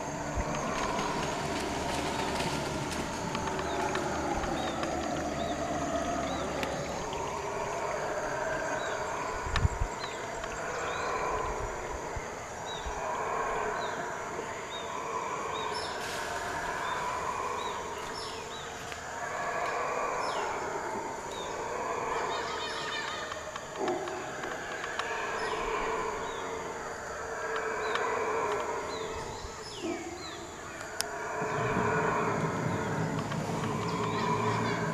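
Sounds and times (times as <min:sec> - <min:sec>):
howler monkeys howling: 0:00.0 - 0:34.9.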